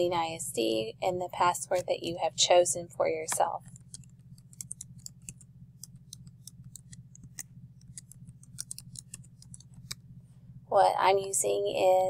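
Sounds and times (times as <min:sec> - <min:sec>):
steady low hum: 0:00.0 - 0:12.0
keyboard typing clicks: 0:03.4 - 0:10.0.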